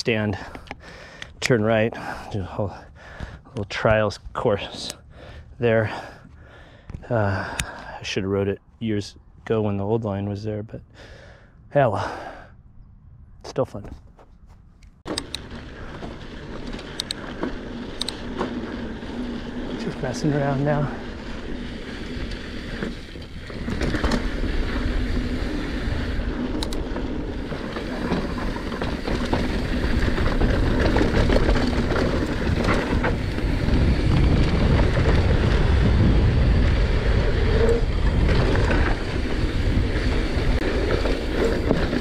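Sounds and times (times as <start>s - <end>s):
bike tyres rumbling over gravel: 0.0s - 8.4s, 15.0s - 42.0s
bike rattling: 14.0s - 42.0s
wind buffeting microphone: 15.4s - 42.0s.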